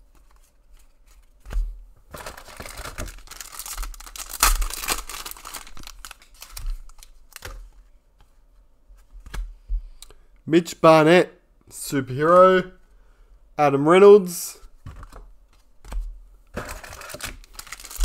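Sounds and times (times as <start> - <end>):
wrapper tearing and crinkling: 2.2 - 7.4, 16.7 - 18.0.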